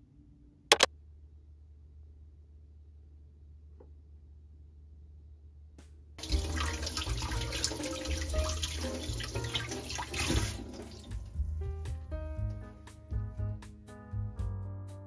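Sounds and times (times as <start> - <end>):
tap water splashing into sink: 6.2 - 11.2
light background music: 6.2 - 15.0.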